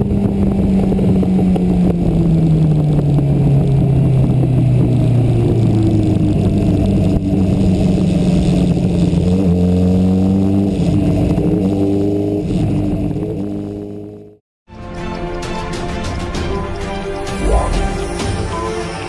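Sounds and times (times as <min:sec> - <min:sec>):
motorcycle engine accelerating: 0:00.0 - 0:14.4.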